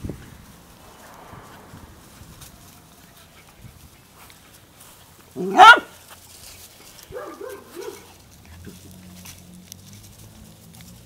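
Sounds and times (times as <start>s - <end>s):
puppy yelping: 5.4s - 5.9s, 7.1s - 8.1s.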